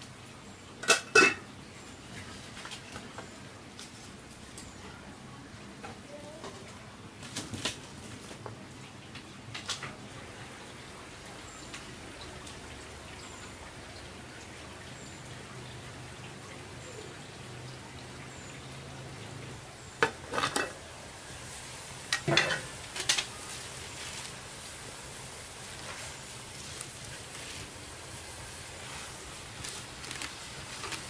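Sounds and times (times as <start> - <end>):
pots and utensils knocking: 0.8 - 1.5, 20.0 - 20.8, 22.1 - 23.3
steady hiss: 7.3 - 31.0.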